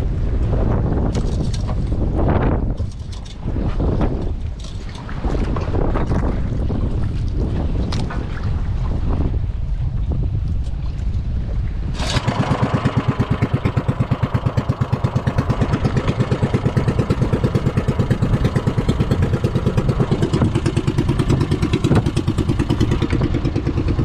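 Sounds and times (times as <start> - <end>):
water against hull: 0.0 - 24.0
wind: 0.0 - 24.0
boat engine puttering: 0.7 - 9.6, 10.6 - 24.0.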